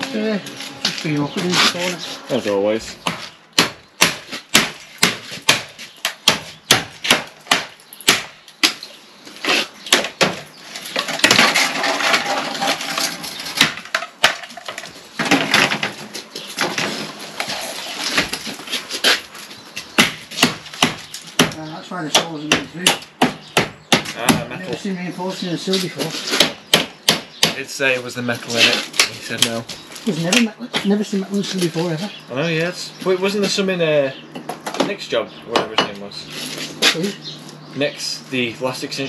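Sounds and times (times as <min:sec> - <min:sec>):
harsh scraping: 0:00.0 - 0:03.4, 0:10.6 - 0:13.6, 0:15.2 - 0:19.7
hammer knocking on brick: 0:20.0 - 0:24.5.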